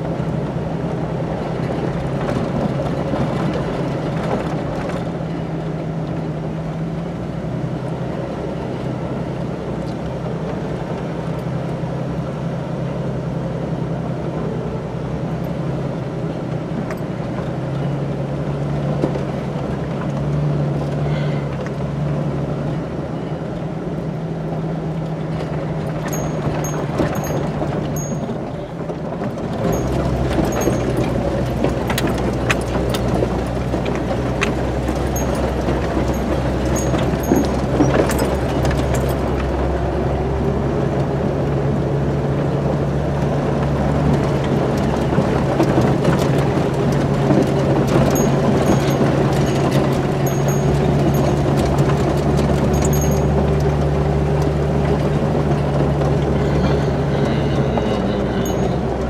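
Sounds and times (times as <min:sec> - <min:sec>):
car engine running: 0:00.0 - 0:59.0
clicks and rattles: 0:25.8 - 0:28.5, 0:29.2 - 0:39.6, 0:44.4 - 0:55.1.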